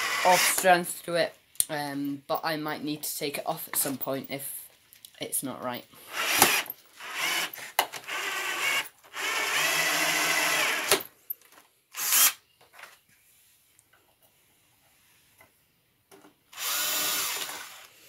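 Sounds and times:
drill driving screw into wood: 0:00.0 - 0:00.7, 0:06.1 - 0:11.1, 0:11.9 - 0:12.4, 0:16.5 - 0:18.0.

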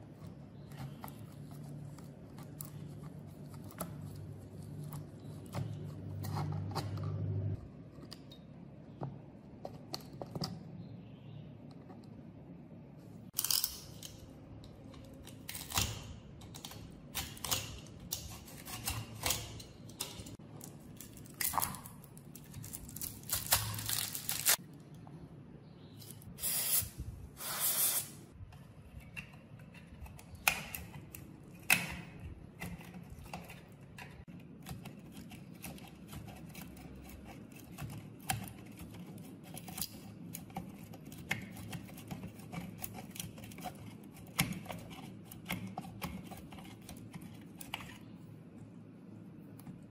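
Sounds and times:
aerosol spray can hissing: 0:27.4 - 0:28.1.

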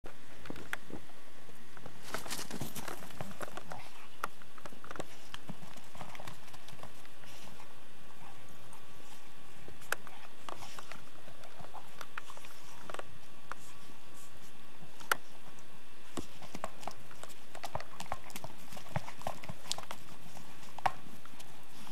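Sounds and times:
dog paws crunching through snow: 0:02.0 - 0:03.4.

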